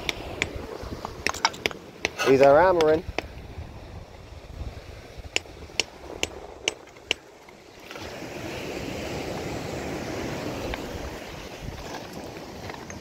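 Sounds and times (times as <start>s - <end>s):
hammer striking rock: 0.0s - 3.3s
rushing wind or surf: 0.0s - 13.0s.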